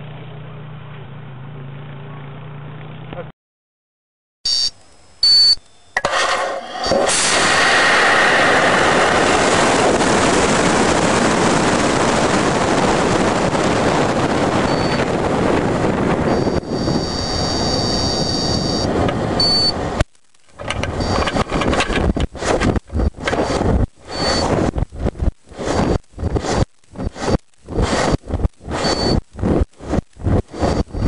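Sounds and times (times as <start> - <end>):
steady high beep: 4.5 - 6.0, 14.6 - 15.1, 16.2 - 19.8, 20.7 - 21.7, 24.1 - 24.5, 28.7 - 29.2
rush of air over rocket: 6.0 - 17.7, 20.6 - 31.0
rocket motor burning: 6.0 - 31.0.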